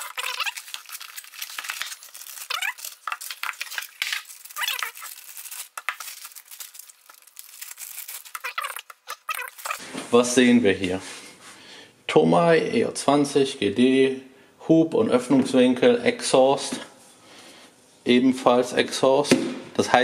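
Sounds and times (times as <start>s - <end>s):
plastic wrapping crinkling and tearing: 0.0s - 9.9s.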